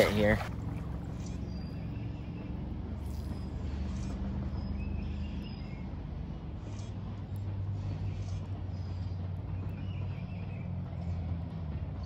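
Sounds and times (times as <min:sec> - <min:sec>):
river water running over shallows: 0:00.0 - 0:04.2
low steady hum: 0:00.0 - 0:12.0.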